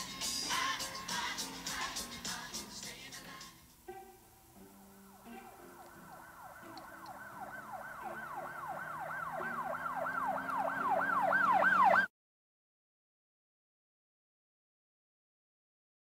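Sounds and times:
low background music: 0.0s - 11.9s
police siren wailing: 4.6s - 12.1s.

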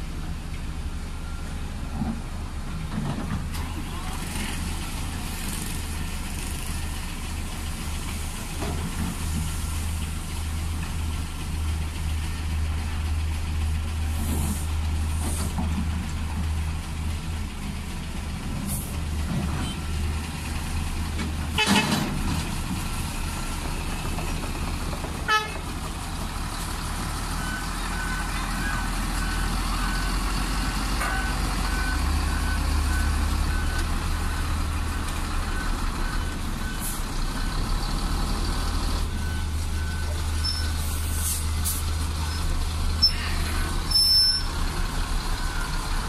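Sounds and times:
excavator diesel engine running: 0.0s - 46.0s
vehicle horn toots: 25.3s - 25.6s.

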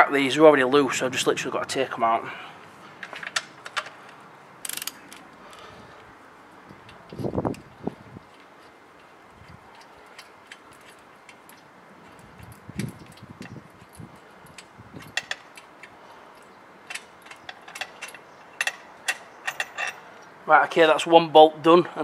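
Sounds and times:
socket wrench ratchet clicking: 4.7s - 5.0s.

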